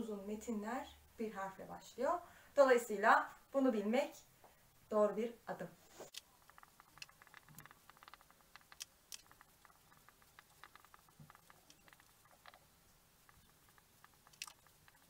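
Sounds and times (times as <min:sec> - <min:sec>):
marker squeaking on whiteboard: 0:05.8 - 0:15.0.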